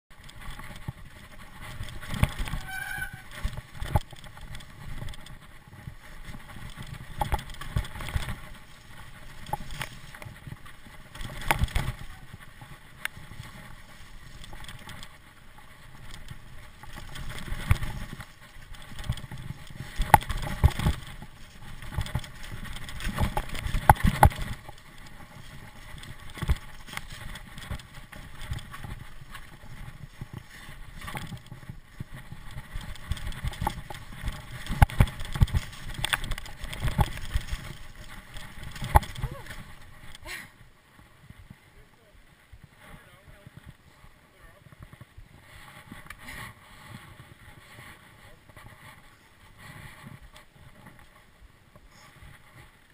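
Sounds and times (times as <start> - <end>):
bike rattling and knocking: 0.1 - 41.5
tyres rumbling over dirt: 0.1 - 41.5
brief high squeal: 2.6 - 3.2.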